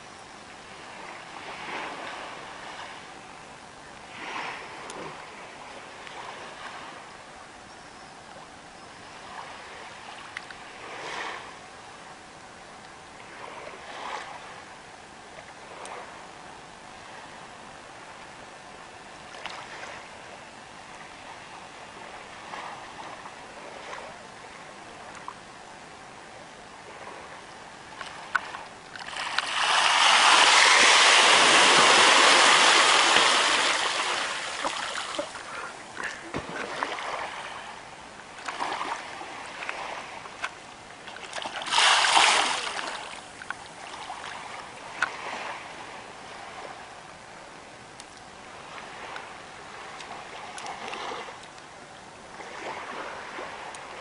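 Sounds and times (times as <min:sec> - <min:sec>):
hiss of moving water: 0:26.8 - 0:37.8, 0:41.3 - 0:45.7
water splashing and churning: 0:26.8 - 0:46.8, 0:48.5 - 0:51.6, 0:52.2 - 0:54.0.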